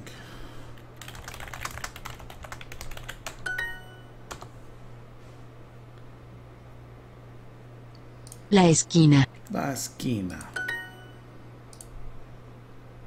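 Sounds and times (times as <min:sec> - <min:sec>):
rapid keyboard typing: 0:01.0 - 0:04.5.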